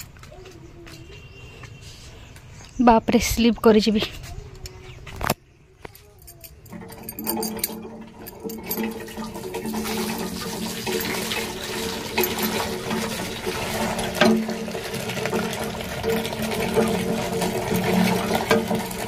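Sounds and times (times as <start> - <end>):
water gushing into bucket: 6.7 - 19.0.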